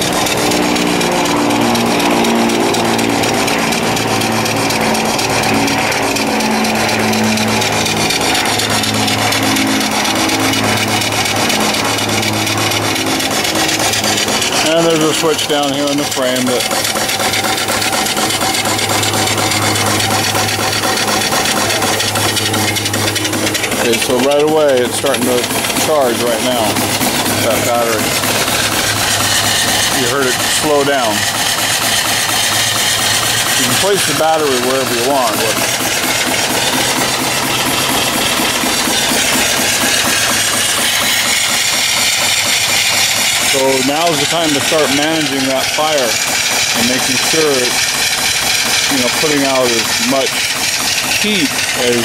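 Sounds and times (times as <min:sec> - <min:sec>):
steady hum: 0:00.0 - 0:52.0
steam engine exhaust beating: 0:00.0 - 0:52.0.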